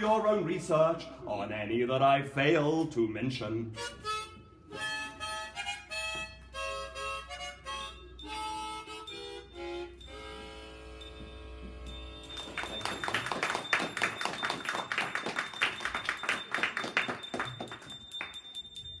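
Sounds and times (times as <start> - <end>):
harmonica chord: 3.7 - 12.3.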